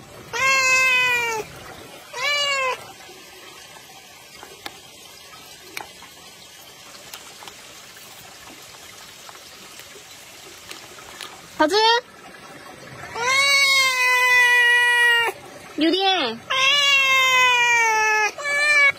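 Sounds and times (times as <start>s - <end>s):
cat meowing: 0.3s - 1.5s, 2.1s - 2.8s, 13.1s - 15.4s, 16.5s - 18.9s.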